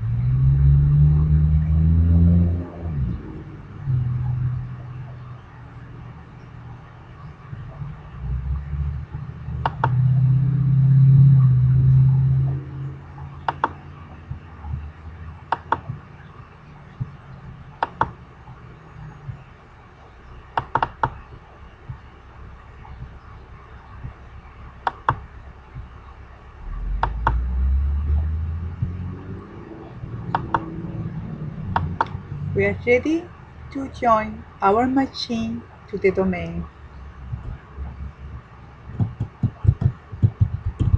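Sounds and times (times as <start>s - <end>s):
low rumble: 0.0s - 40.9s
computer mouse clicking: 9.6s - 10.0s, 13.4s - 13.8s, 15.5s - 16.0s, 17.8s - 18.2s, 20.6s - 21.2s, 24.8s - 25.2s, 27.0s - 27.4s, 30.3s - 30.7s, 31.7s - 32.2s.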